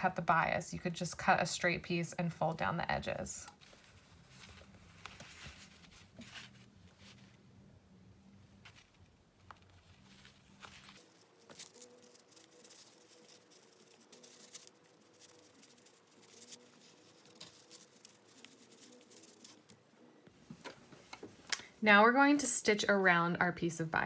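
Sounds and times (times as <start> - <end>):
fabric rustling: 3.5 - 7.4, 8.5 - 19.8.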